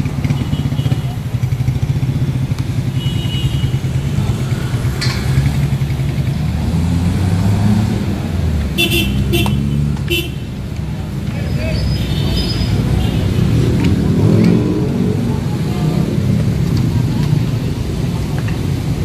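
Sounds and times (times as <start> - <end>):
motorcycle engines rumbling: 0.0 - 19.0
vehicle horn toot: 3.0 - 3.9, 8.8 - 10.4.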